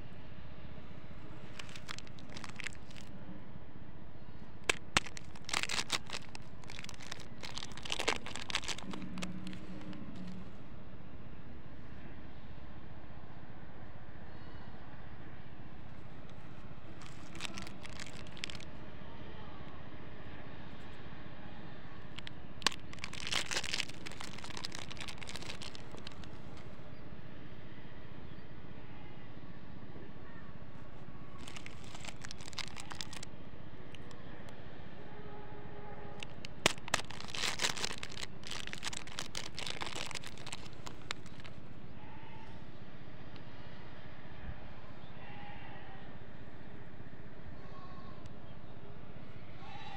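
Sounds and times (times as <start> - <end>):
low background hum: 0.0 - 49.9
plastic wrapper crinkling: 1.3 - 3.1, 4.6 - 10.4, 16.3 - 18.7, 22.2 - 26.8, 31.4 - 33.3, 36.2 - 41.6.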